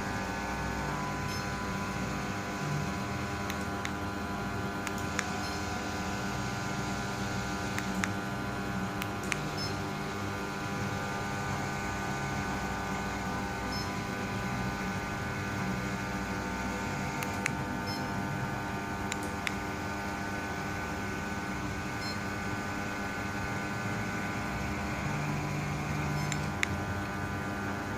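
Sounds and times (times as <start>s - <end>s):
electric motors humming: 0.0s - 27.9s
low motor drone: 0.0s - 27.9s
sharp clicks: 4.8s - 5.3s, 19.1s - 19.6s.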